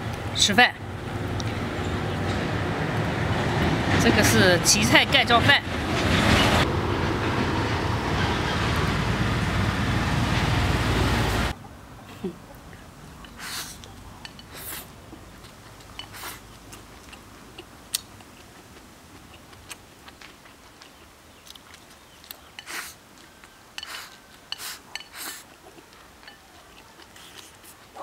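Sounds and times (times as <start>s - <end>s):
mouth eating sounds: 13.1s - 28.0s
chopsticks scraping a bowl: 13.2s - 14.9s, 22.6s - 23.0s, 23.8s - 25.5s.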